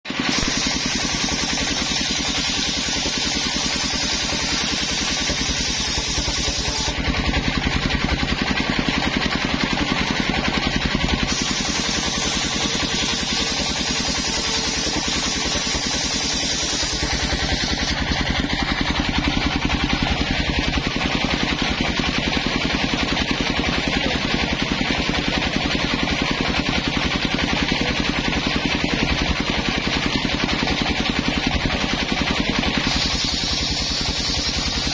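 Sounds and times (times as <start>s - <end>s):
saw blade hissing through wood: 0.1s - 7.3s, 11.1s - 21.6s, 32.6s - 34.9s
table saw engine running: 0.1s - 34.9s.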